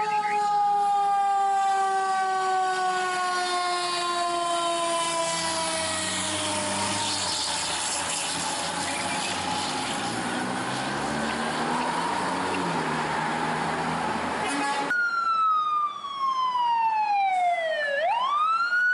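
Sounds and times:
fire engine siren winding down: 0:00.0 - 0:18.9
road noise: 0:00.0 - 0:18.9
diesel engine pulling away: 0:01.4 - 0:14.6.

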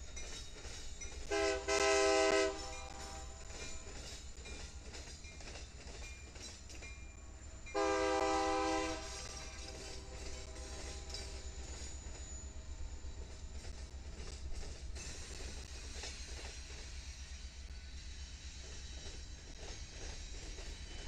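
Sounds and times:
train rolling rumble: 0:00.0 - 0:21.0
locomotive air horn blasts: 0:01.3 - 0:03.4, 0:07.7 - 0:11.3.

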